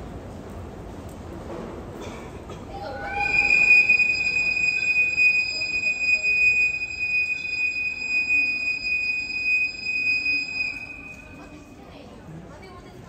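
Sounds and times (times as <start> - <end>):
train wheels squealing: 2.8 - 11.7.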